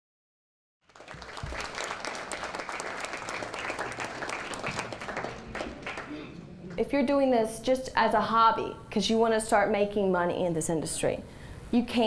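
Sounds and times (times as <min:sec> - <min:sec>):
audience applauding: 0:00.9 - 0:06.3.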